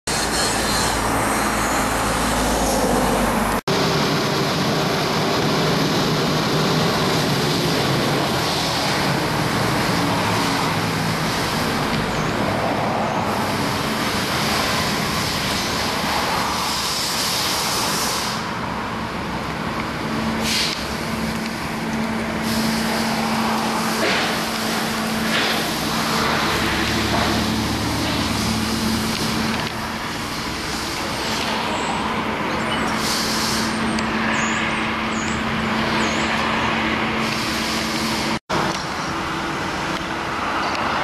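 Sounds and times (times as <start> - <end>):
traffic noise: 0.0 - 41.0
wash bay noise: 20.4 - 34.3.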